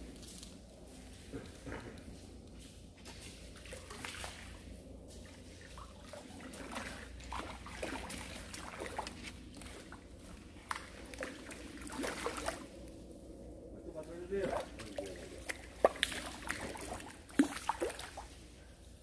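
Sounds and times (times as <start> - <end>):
fish splashing in water: 3.6 - 4.6, 5.4 - 12.8, 14.4 - 18.4.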